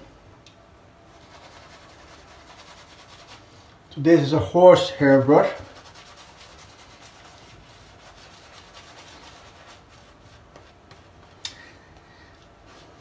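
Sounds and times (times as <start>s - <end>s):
brush rubbing lather into beard: 1.1s - 3.7s, 5.3s - 11.4s.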